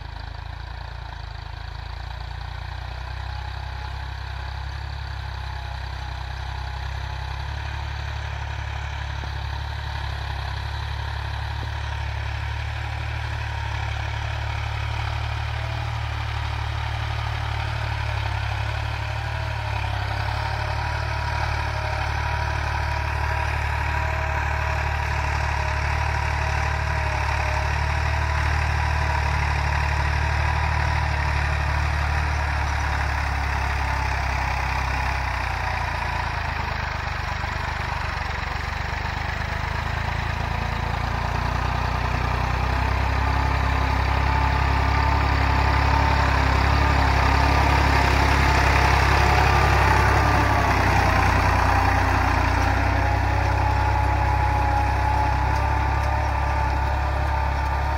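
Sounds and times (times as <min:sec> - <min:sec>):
tractor diesel engine under load: 0:00.0 - 0:57.9.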